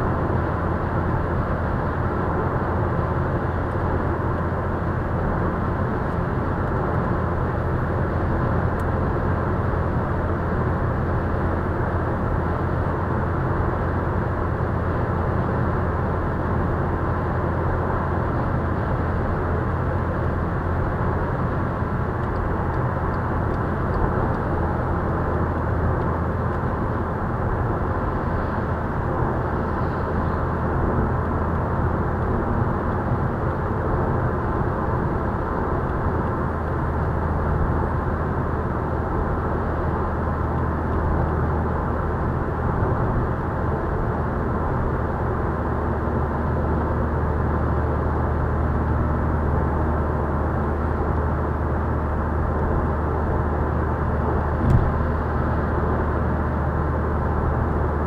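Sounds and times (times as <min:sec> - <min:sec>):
low engine hum: 0:00.0 - 0:58.0
tyre and road noise: 0:48.7 - 0:58.0.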